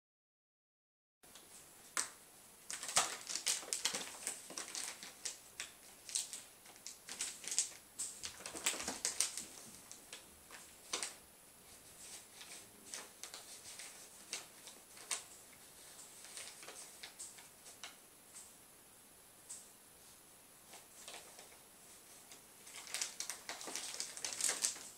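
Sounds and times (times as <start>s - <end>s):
cat claws scrabbling at plastic wrap: 2.7s - 11.2s, 12.0s - 15.3s, 16.2s - 18.0s, 22.3s - 24.9s.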